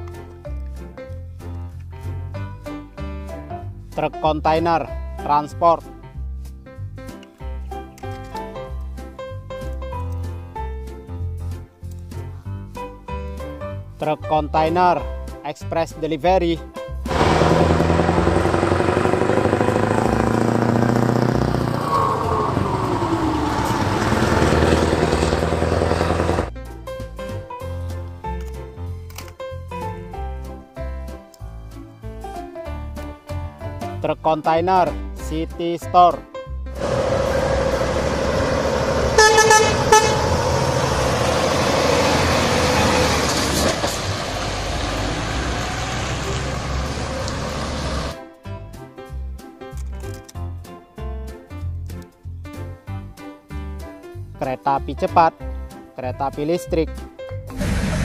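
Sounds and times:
lorry diesel engine passing: 17.1 - 26.5, 36.8 - 48.2
truck horn blasts: 36.8 - 43.4.

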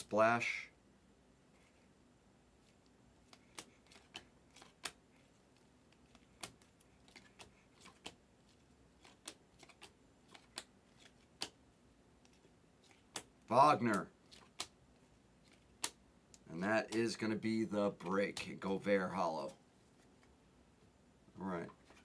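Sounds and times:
cards clicking as flipped: 3.2 - 11.6, 12.2 - 14.8, 15.4 - 16.0.

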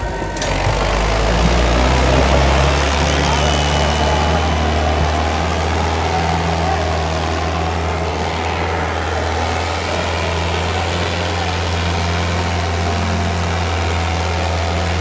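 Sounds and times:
diesel tractor engines droning: 0.0 - 15.0.

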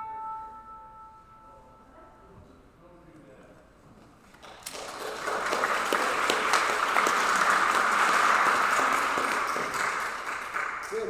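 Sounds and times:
congregation clapping: 4.3 - 11.0.

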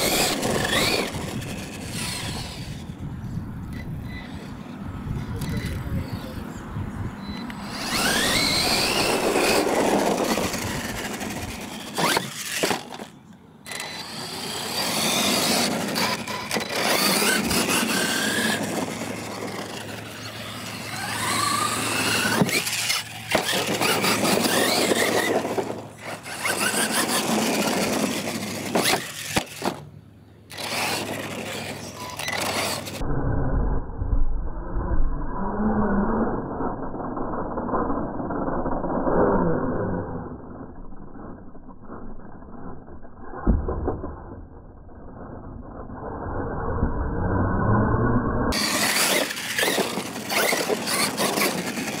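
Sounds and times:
electric motor whine: 0.0 - 6.6, 7.4 - 29.8, 30.5 - 33.1, 48.5 - 52.0
tyres on dirt: 0.0 - 33.0, 48.5 - 52.0.

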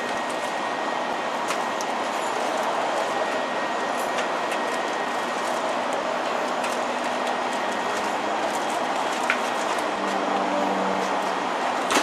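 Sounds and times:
candy wrappers clicking and crinkling: 4.1 - 10.2.

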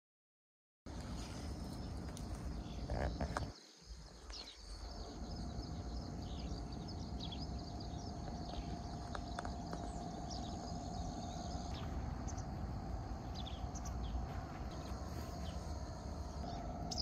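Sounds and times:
faint high chirps: 4.2 - 17.0
wind buffeting microphone: 4.8 - 17.0.

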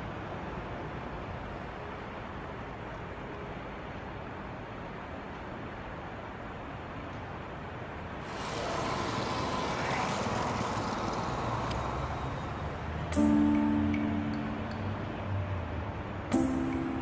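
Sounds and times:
outdoor background noise: 0.0 - 17.0
road traffic passing: 7.6 - 17.0.

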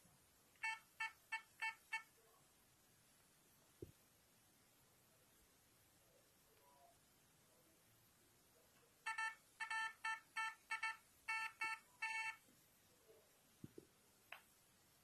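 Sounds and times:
metal detector buzzy beeps: 9.1 - 12.4.

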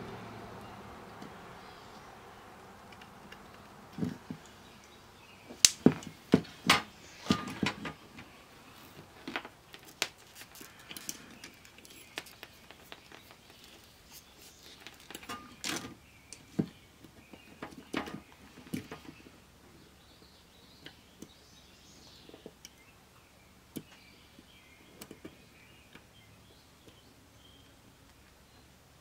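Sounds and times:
small parts clicking and knocking: 9.2 - 19.1.

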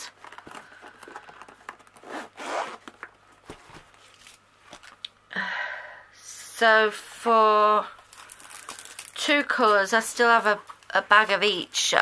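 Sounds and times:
zipper being unzipped: 2.0 - 2.9.

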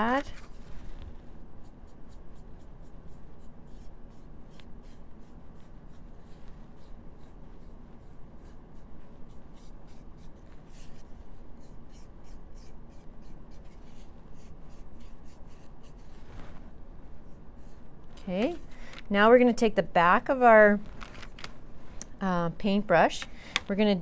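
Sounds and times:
low room hum: 0.0 - 24.0
dry paintbrush scratching: 0.1 - 18.7.

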